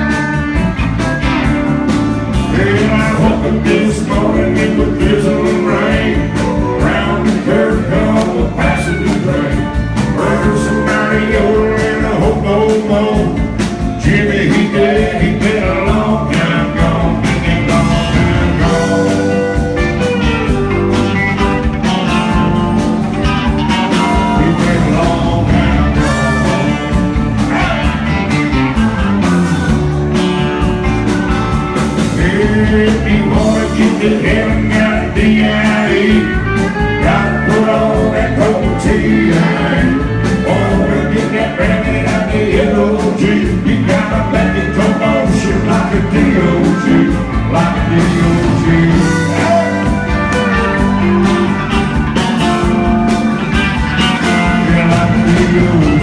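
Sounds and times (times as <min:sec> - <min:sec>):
live country band playing: 0:00.0 - 0:56.0.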